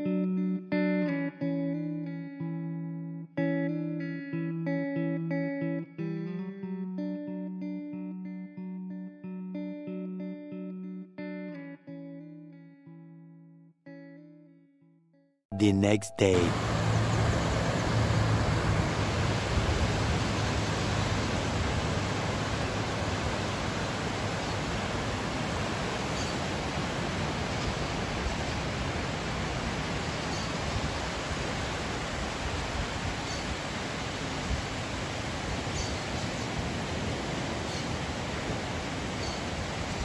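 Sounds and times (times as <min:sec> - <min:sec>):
ocean surf rushing: 0:16.2 - 0:40.0.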